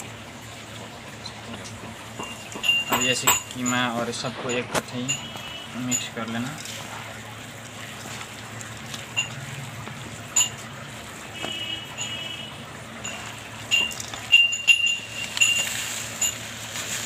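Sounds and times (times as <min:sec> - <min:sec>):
steel mixing bowl clinking: 0:01.2 - 0:07.2, 0:07.8 - 0:10.8, 0:13.0 - 0:17.0.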